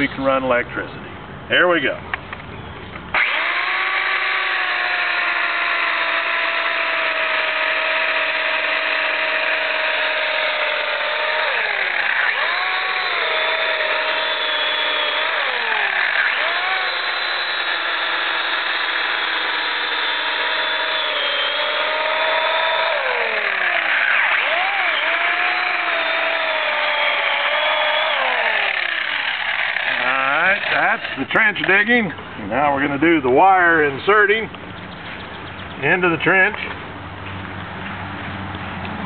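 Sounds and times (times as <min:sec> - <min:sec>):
chainsaw cutting through soil: 0:03.1 - 0:32.0.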